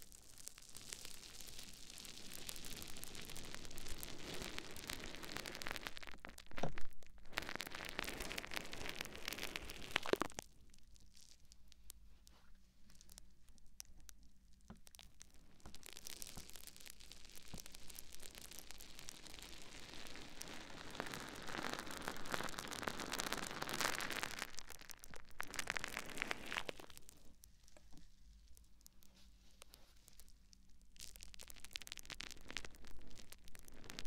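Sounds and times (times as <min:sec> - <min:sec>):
sponge squeezed and rubbed: 0:25.4 - 0:27.0.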